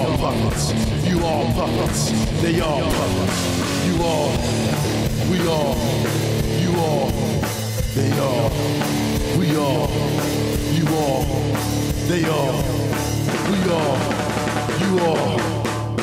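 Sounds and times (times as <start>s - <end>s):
drum kit: 0.0s - 16.0s
rock guitar: 0.0s - 16.0s.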